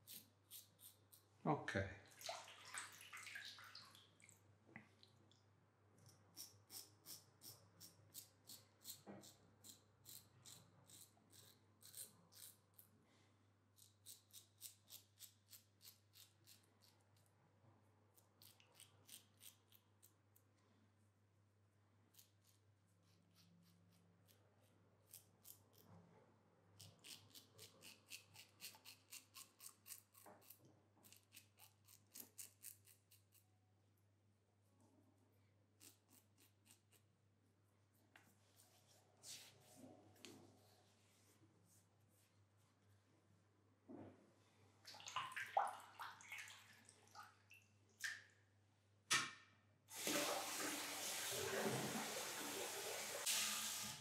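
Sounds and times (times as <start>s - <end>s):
razor scratching stubble: 6.4s - 12.6s, 26.8s - 33.4s.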